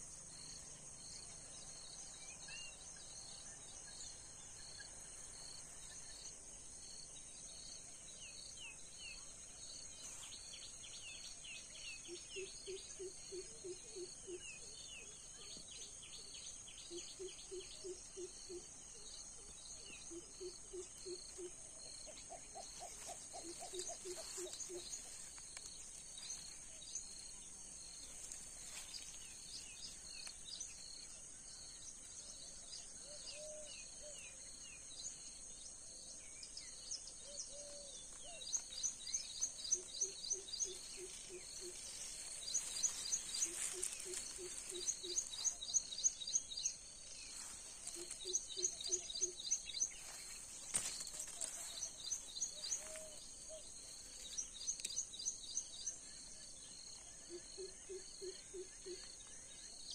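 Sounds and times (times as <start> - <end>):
high insect hum: 0.0 - 59.9
wild birds calling: 20.0 - 26.7, 37.3 - 54.8.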